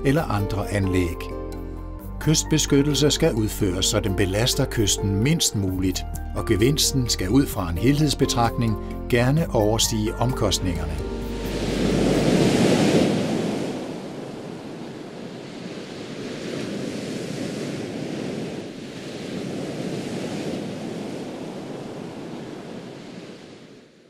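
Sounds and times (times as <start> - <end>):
waves breaking on beach: 11.0 - 24.0.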